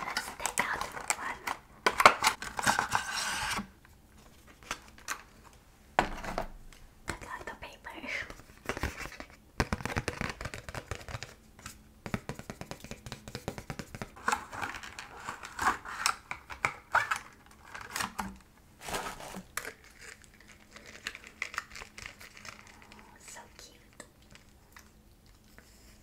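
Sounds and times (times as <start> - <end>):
packaging crinkling and rustling: 0.0 - 5.6, 14.2 - 24.9
tapping and scratching on packaging: 8.6 - 11.4.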